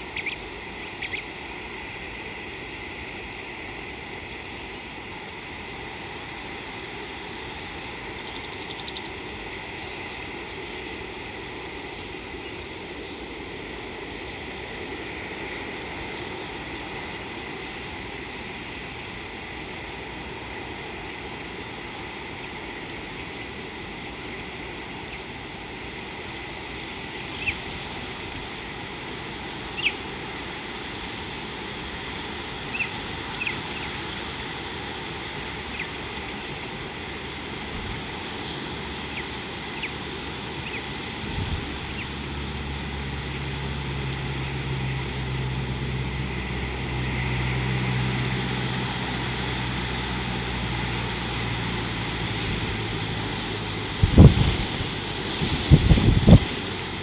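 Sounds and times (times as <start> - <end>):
insect calling: 0.0 - 57.0
low mechanical hum: 0.0 - 57.0
steady hiss: 0.0 - 57.0.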